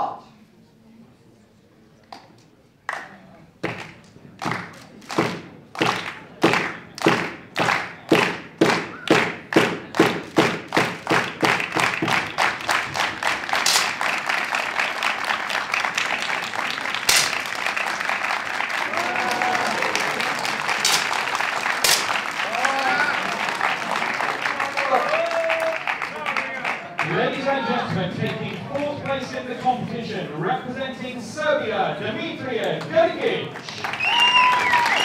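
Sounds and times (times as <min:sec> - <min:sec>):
spectators clapping in unison: 0:02.9 - 0:29.4, 0:32.7 - 0:35.0
sharp cracks: 0:03.6 - 0:14.9, 0:16.9 - 0:18.2, 0:19.7 - 0:22.5.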